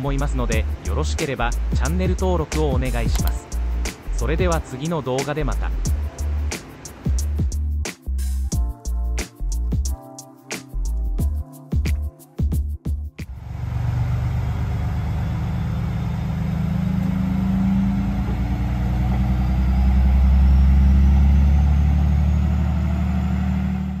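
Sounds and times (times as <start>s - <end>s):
railcar diesel engine drone: 13.3s - 24.0s.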